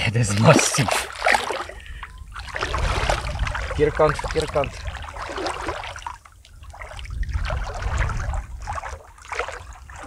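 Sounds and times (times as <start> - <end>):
water splashing and trickling: 0.0 - 10.0.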